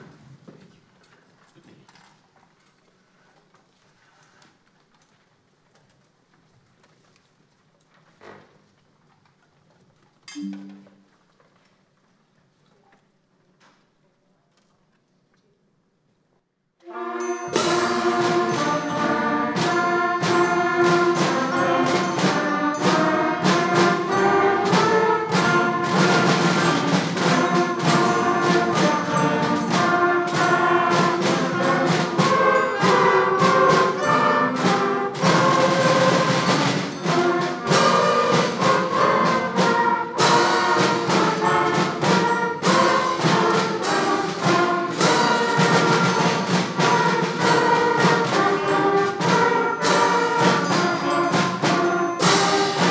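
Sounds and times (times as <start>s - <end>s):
concert band playing: 16.9s - 52.9s
cymbal strokes: 16.9s - 52.9s.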